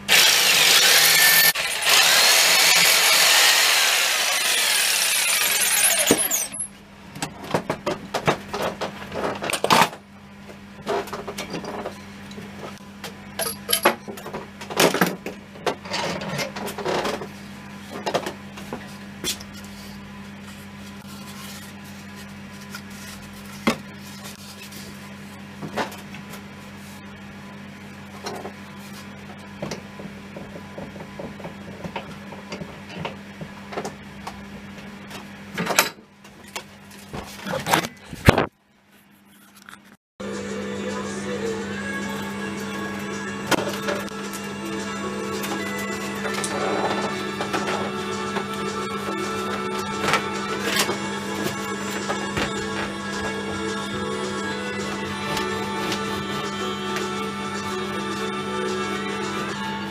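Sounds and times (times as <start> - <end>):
steady low hum: 40.2 - 59.9.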